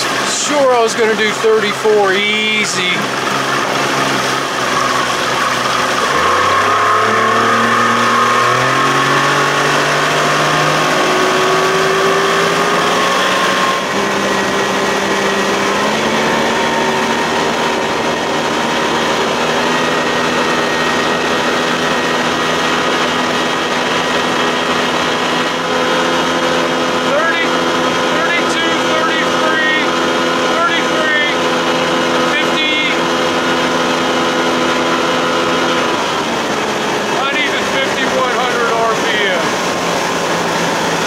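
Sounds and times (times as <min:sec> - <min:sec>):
outboard motor running: 0:00.0 - 0:41.0
water rushing: 0:00.0 - 0:41.0.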